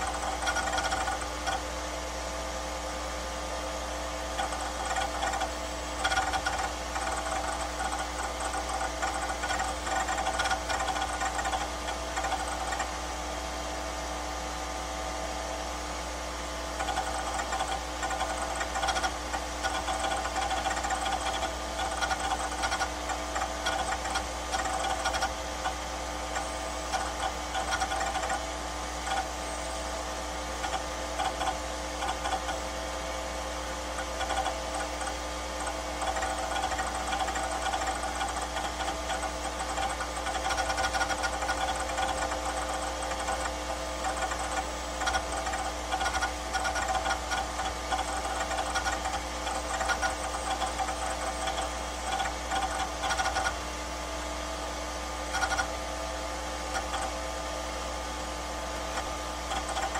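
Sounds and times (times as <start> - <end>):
small machine chattering: 0.0 - 1.7, 4.3 - 13.0, 16.7 - 29.8, 30.5 - 32.8, 33.8 - 53.6, 55.2 - 55.8, 56.6 - 57.2, 58.7 - 59.9
electrical hum: 0.0 - 59.9.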